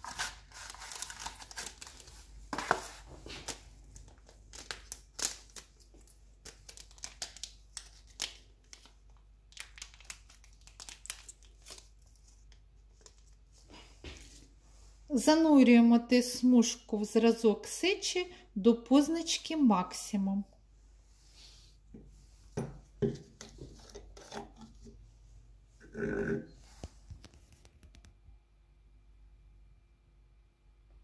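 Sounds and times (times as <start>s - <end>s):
packaging crinkles and rustles: 0.0s - 13.6s.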